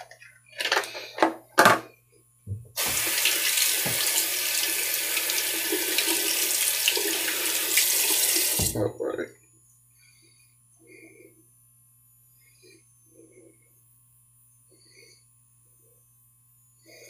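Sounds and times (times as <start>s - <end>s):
tap water splashing into basin: 2.8s - 4.2s, 5.7s - 8.8s.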